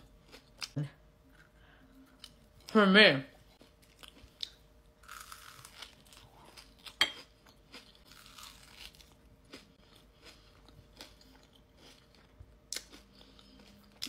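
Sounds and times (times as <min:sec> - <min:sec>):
crunchy chewing: 0:03.6 - 0:14.0.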